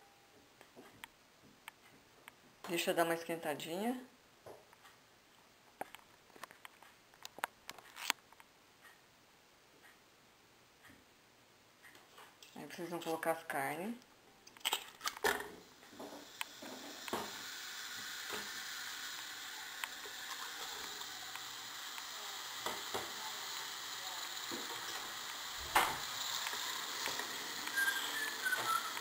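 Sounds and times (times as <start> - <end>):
meat frying hiss: 15.6 - 29.0.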